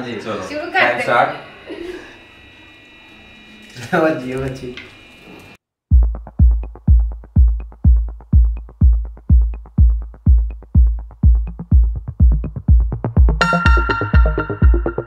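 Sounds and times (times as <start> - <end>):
electronic dance music: 5.9 - 15.0.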